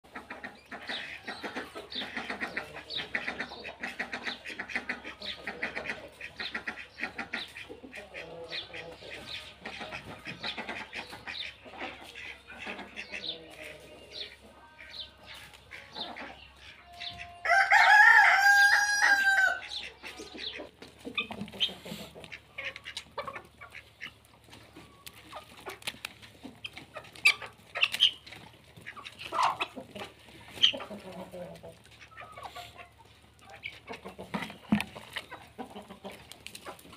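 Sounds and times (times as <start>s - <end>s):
chickens clucking: 0.0s - 36.9s
rooster crowing: 17.4s - 19.6s.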